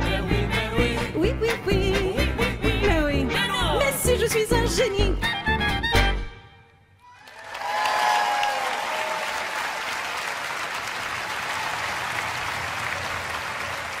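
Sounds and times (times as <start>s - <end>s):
audience clapping: 7.1s - 14.0s
voices cheering: 7.2s - 14.0s.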